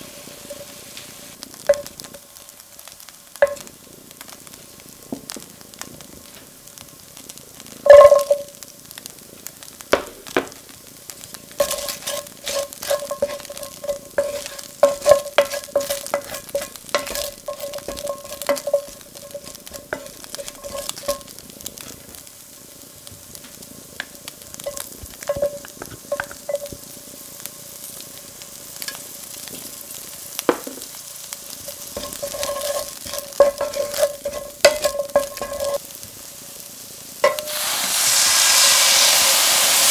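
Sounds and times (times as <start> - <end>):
onions sizzling in oil: 0.0 - 39.9
spatula scraping metal pan: 11.6 - 21.3, 31.7 - 35.8.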